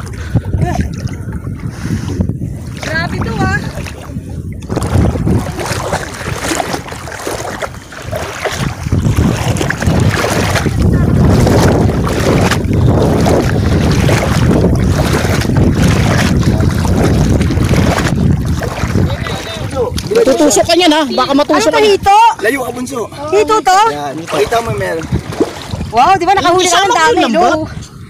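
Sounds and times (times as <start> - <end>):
water sloshing around wading legs: 0.0 - 27.6
wind buffeting microphone: 0.0 - 28.0.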